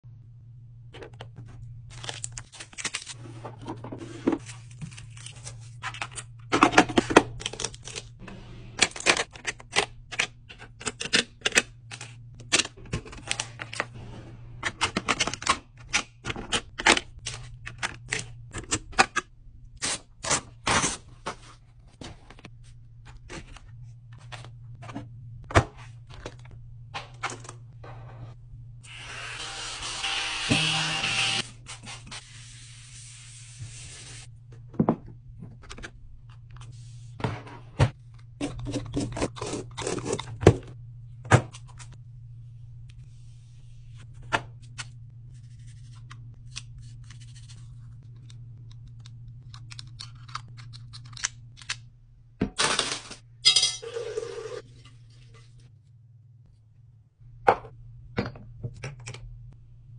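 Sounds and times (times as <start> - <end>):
steady low hum: 19.2 - 28.9, 34.0 - 52.4.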